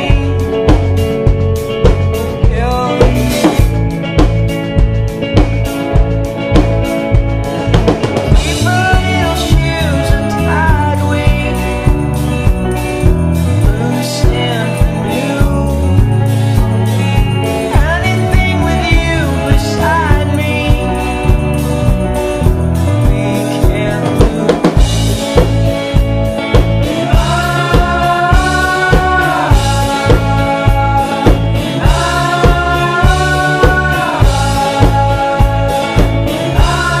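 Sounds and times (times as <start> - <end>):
steady drum beat: 0.0 - 37.0
person singing long notes: 26.9 - 37.0.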